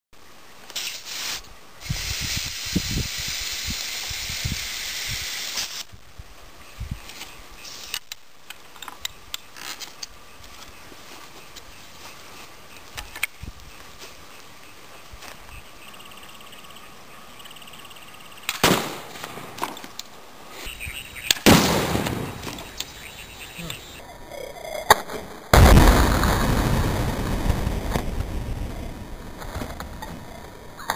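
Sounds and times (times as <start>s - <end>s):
compressed air hissing: 0.8s - 5.8s
faint insect chirping: 8.8s - 18.5s, 20.6s - 21.5s, 22.4s - 24.9s.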